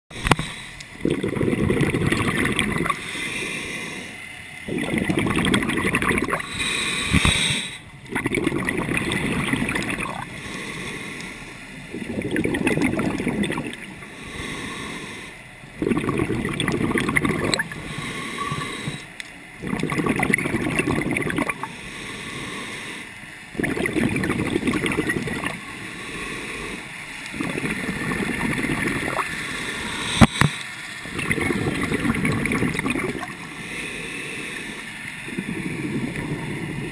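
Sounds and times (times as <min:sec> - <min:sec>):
bubbles bursting on exhale: 0:01.0 - 0:03.0, 0:04.6 - 0:10.3, 0:11.9 - 0:13.9, 0:15.8 - 0:19.0, 0:19.6 - 0:21.7, 0:23.5 - 0:25.6, 0:27.3 - 0:29.3, 0:30.1 - 0:33.5
scuba regulator hissing inhale: 0:02.8 - 0:04.2, 0:06.4 - 0:07.8, 0:10.0 - 0:11.7, 0:14.0 - 0:15.4, 0:17.6 - 0:19.1, 0:21.6 - 0:23.2, 0:25.6 - 0:26.9, 0:29.3 - 0:30.8, 0:33.4 - 0:36.9.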